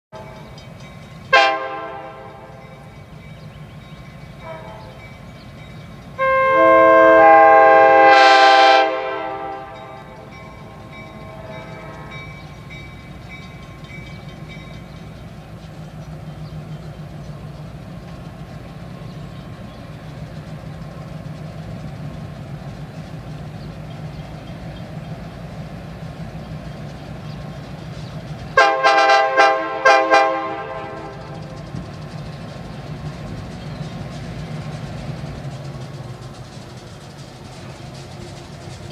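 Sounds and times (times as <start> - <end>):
diesel locomotive rumbling: 0.1 - 38.9
locomotive air horn: 1.3 - 2.6, 4.4 - 5.0, 6.2 - 9.9, 11.2 - 12.3, 28.6 - 31.4.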